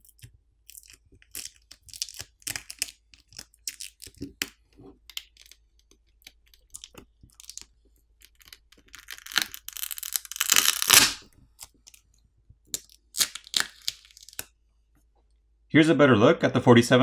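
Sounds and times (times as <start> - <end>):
battery adhesive tearing: 6.2 - 12.0.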